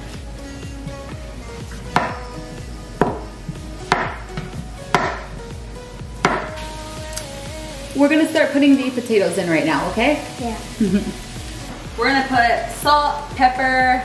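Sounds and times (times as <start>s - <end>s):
background music: 0.0s - 14.0s
knife chopping on cutting board: 1.9s - 2.2s, 3.0s - 3.3s, 3.9s - 5.4s, 6.2s - 6.6s.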